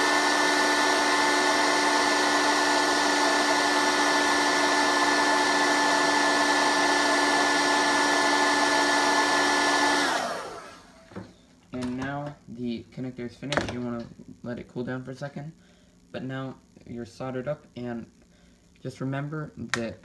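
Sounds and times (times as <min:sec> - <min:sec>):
heat gun blowing air: 0:00.0 - 0:11.0.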